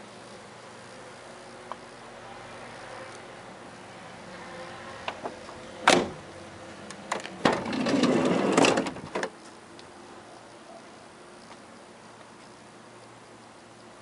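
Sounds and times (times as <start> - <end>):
sliding door running along runner: 4.2 - 9.4.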